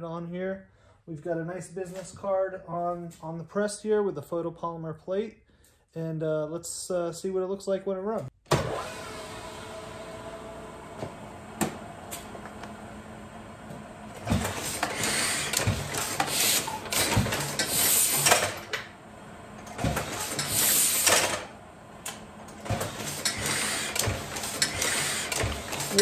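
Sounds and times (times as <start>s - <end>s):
printing press rhythmic clanking: 14.1s - 26.0s.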